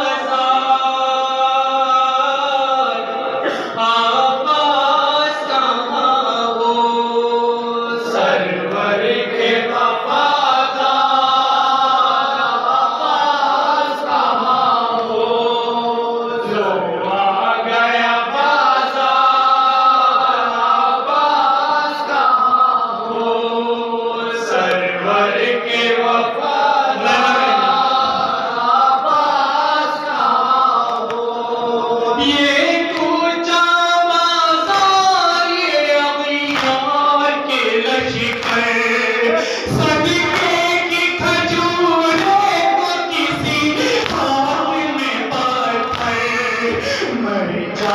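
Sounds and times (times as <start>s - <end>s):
men chanting through microphone: 0.0s - 47.9s.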